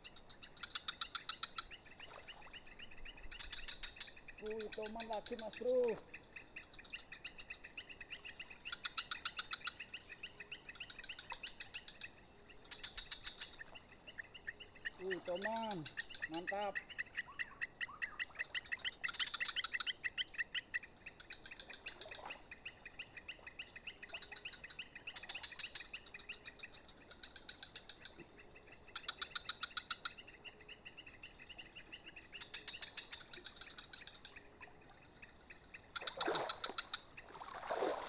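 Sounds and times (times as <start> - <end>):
insects droning and chirping: 0.0 - 38.0
water splashing: 36.0 - 38.0.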